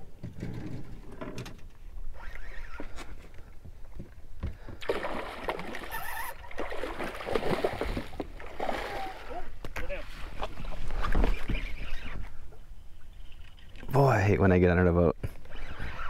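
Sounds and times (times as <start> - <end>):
fish splashing in water: 4.8 - 9.4.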